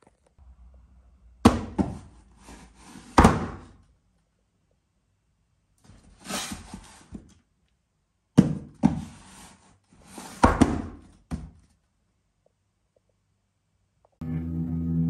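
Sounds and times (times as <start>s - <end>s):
cardboard box scraping on wood: 6.1s - 7.1s.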